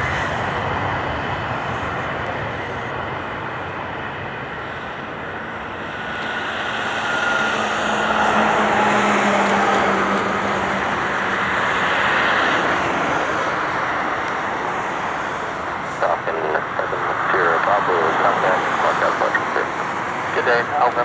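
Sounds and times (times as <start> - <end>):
steady low drone: 0.0 - 11.8
jet taking off: 0.0 - 21.0.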